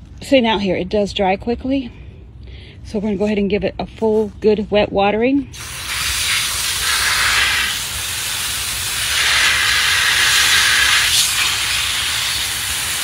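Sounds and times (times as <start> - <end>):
hose spraying water: 5.6 - 13.0.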